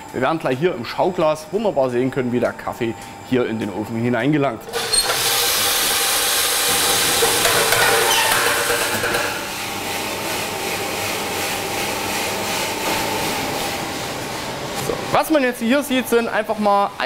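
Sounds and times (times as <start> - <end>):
coffee roaster running: 0.0 - 17.0
coffee beans rattling in roaster: 4.6 - 13.5.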